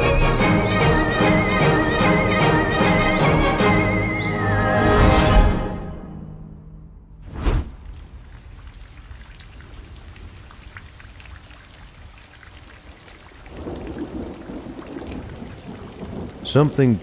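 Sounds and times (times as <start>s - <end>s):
rain falling: 7.7s - 17.0s
rumble of thunder: 13.5s - 17.0s.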